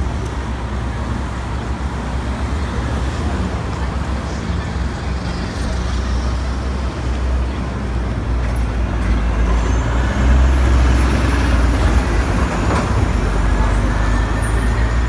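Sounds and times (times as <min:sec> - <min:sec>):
bus engine rumbling past: 0:00.0 - 0:15.0
street traffic: 0:00.0 - 0:15.0.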